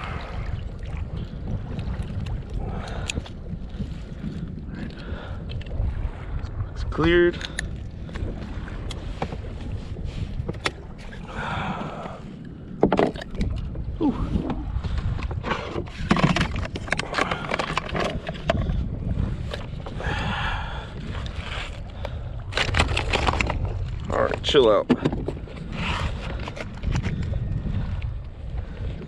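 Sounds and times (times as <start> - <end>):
wind rumble: 0.0 - 29.0
handling fish clicks and knocks: 1.8 - 5.8, 10.3 - 11.2, 12.8 - 13.8, 14.4 - 18.8, 19.4 - 20.0, 21.0 - 28.1.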